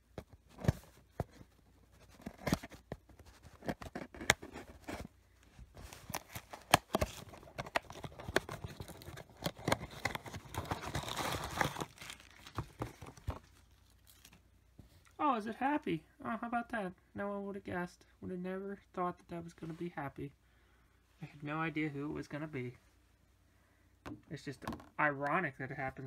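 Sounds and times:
cardboard box opening: 0:00.5 - 0:14.4
packaging tearing and crinkling: 0:05.9 - 0:14.4.

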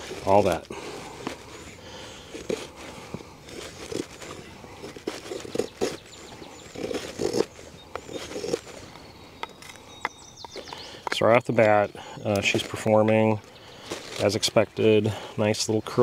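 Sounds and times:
knife shaving wood: 0:00.0 - 0:09.8.

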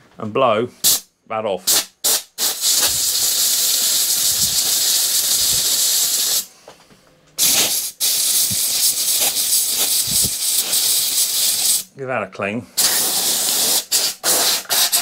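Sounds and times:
compressed air blow gun hissing: 0:01.7 - 0:06.5, 0:07.4 - 0:11.9, 0:12.8 - 0:15.0.

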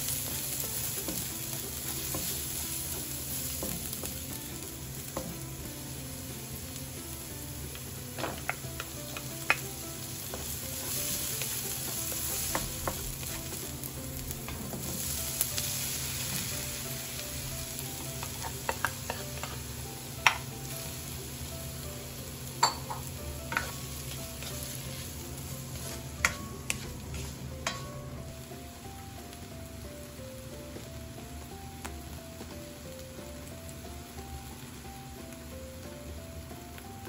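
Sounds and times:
onion and garlic sizzling in oil: 0:00.0 - 0:37.0
utensil clicking against pan: 0:08.2 - 0:09.7.

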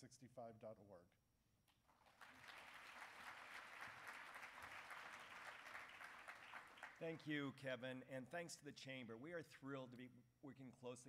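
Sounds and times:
audience applauding: 0:01.9 - 0:07.3.

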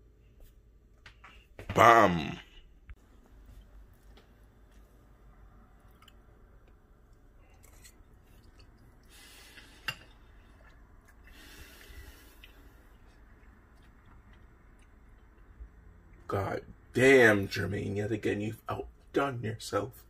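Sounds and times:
faint chewing: 0:05.7 - 0:16.3.

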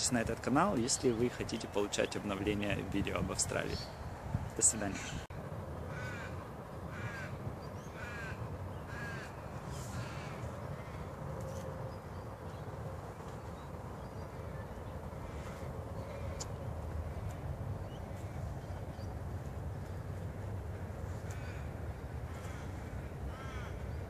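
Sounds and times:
crow cawing: 0:05.9 - 0:11.1, 0:21.2 - 0:24.0.

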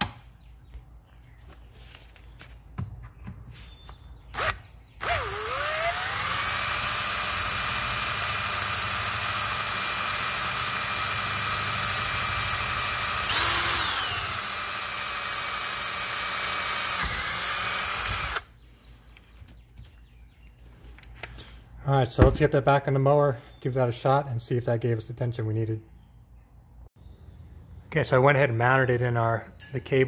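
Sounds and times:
electric drill boring through steel: 0:04.4 - 0:18.5.

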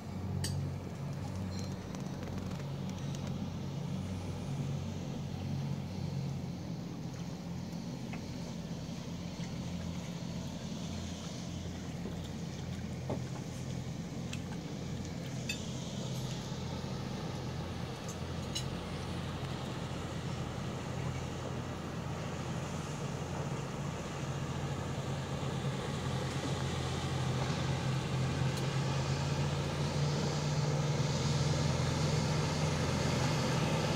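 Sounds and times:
boat engine running: 0:00.0 - 0:33.9.

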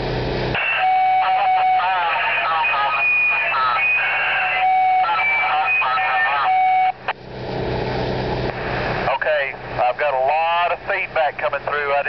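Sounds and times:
low engine rumble: 0:00.0 - 0:12.0
beep tones: 0:00.6 - 0:07.0
two-way radio squawking: 0:00.6 - 0:07.1, 0:08.6 - 0:12.0.

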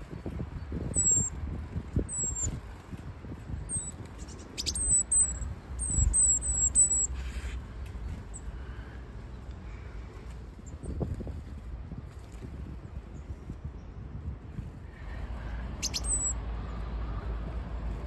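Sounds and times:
wind rumbling on microphone: 0:00.0 - 0:18.0
high thin bird calls: 0:03.7 - 0:07.6, 0:15.8 - 0:16.4.

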